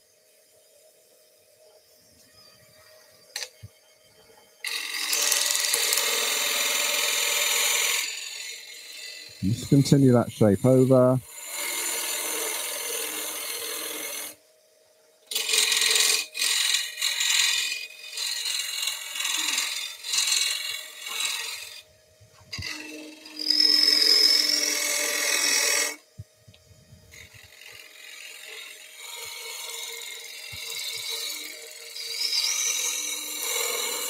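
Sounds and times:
lathe humming: 0:04.6 - 0:14.4, 0:15.3 - 0:34.0
gouge rasping on spinning wood: 0:04.7 - 0:14.4, 0:15.3 - 0:21.8, 0:22.5 - 0:26.0, 0:27.1 - 0:34.0
tool squealing on wood: 0:15.3 - 0:21.8, 0:22.4 - 0:26.0, 0:27.1 - 0:34.0.

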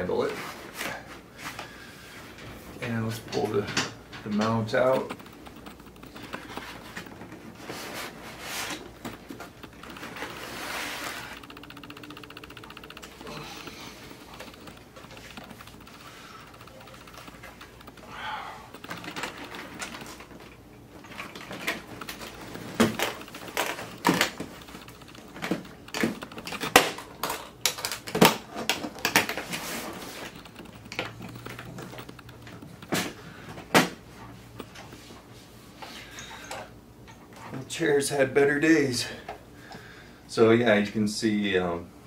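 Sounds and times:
case latches clicking and knocking: 0:04.9 - 0:07.4, 0:18.7 - 0:20.4, 0:21.2 - 0:33.2.

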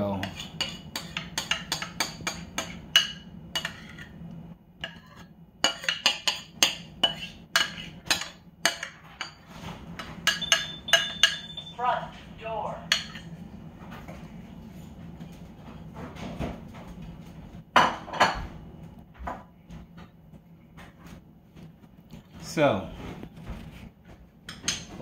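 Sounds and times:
utensil scraping ceramic bowl: 0:00.0 - 0:04.2, 0:04.8 - 0:11.7.

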